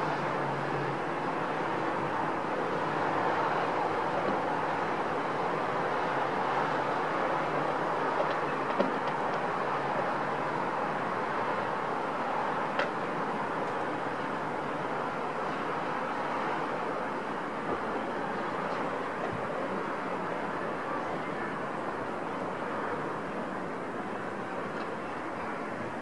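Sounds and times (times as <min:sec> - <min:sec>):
distant city traffic: 0:00.0 - 0:26.0.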